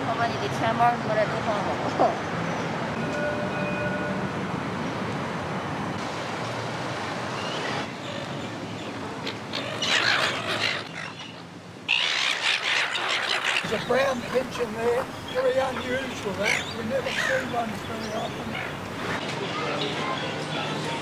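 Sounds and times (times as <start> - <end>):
street noise: 0.0 - 21.0
gulls squawking and calling: 8.0 - 20.4.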